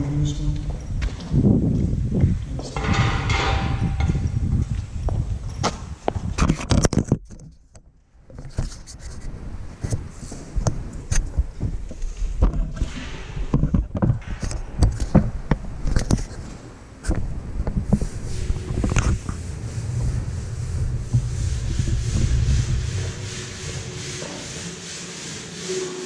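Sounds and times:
corrugated steel sheets clanking: 2.7 - 4.2
low steady rumble: 14.2 - 24.8.

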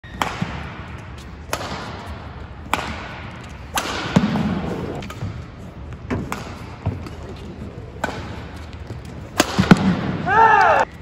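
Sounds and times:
rackets striking shuttlecock: 0.1 - 7.3, 7.9 - 10.8.

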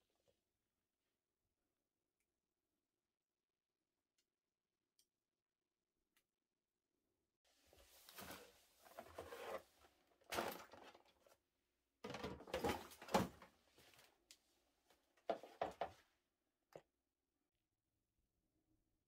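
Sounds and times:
plastic baskets knocking and rustling: 10.2 - 11.2, 12.0 - 13.6.

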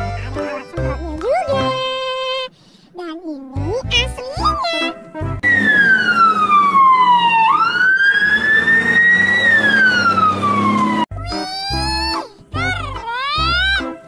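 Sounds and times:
fire engine siren wailing: 5.4 - 11.1.

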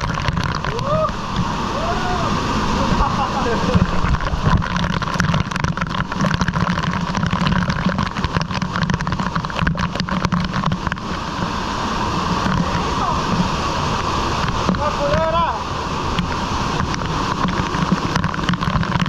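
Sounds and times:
water splattering on camera: 0.0 - 1.6, 3.4 - 11.6, 16.1 - 19.0
waterfall rushing: 0.0 - 19.0.

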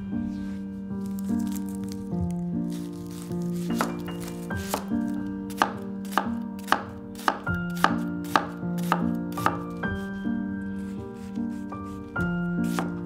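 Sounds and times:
soft background music: 0.0 - 13.0
knife chopping on cutting board: 3.6 - 4.0, 4.6 - 4.9, 5.5 - 9.6, 12.6 - 13.0.

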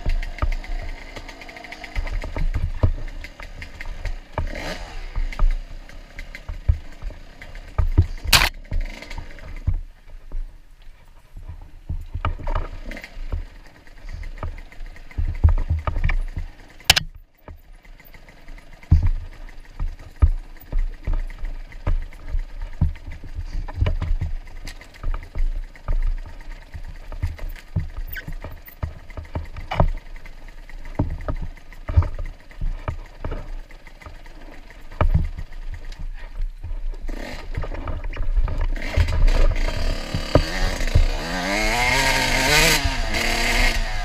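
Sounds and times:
sharp cracks: 0.0 - 9.7, 12.3 - 17.2
dirt bike engine: 0.0 - 44.0
suspension thumps and rattles: 0.0 - 44.0.

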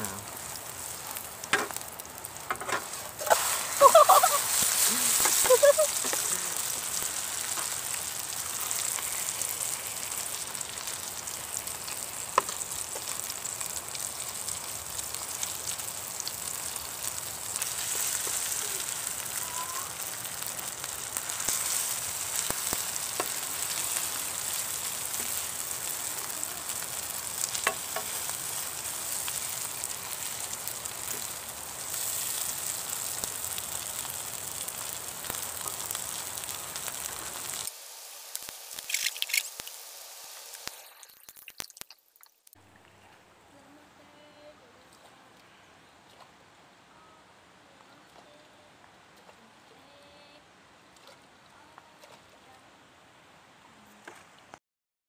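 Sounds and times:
pancakes sizzling in oil: 0.0 - 42.6.

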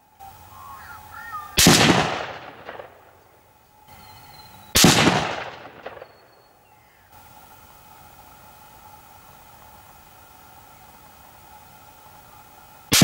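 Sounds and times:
rifle shots echoing: 1.6 - 3.1, 4.8 - 6.4.

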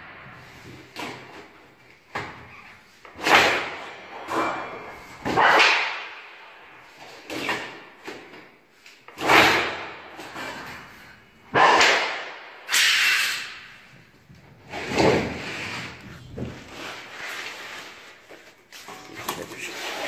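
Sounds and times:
blade shear cutting sheet metal: 11.6 - 13.7.

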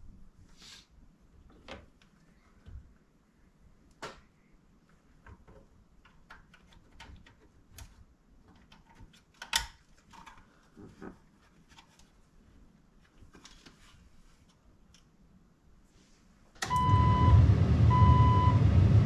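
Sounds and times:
plastic connectors clicking: 8.5 - 10.4.

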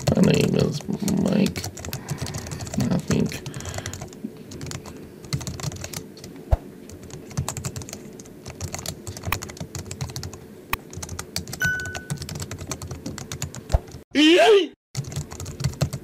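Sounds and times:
keyboard typing: 0.0 - 6.0, 6.9 - 14.0, 15.0 - 16.0
short electronic beep: 11.6 - 12.2.

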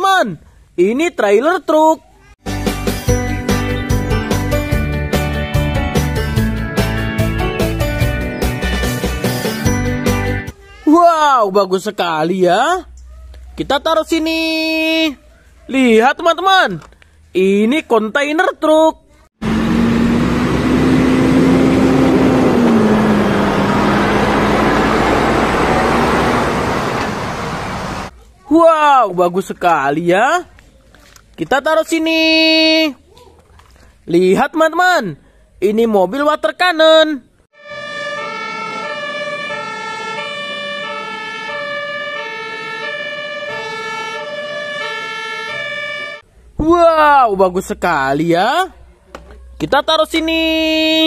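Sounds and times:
truck engine humming: 19.4 - 28.1
road noise: 19.4 - 28.4, 37.5 - 46.7.

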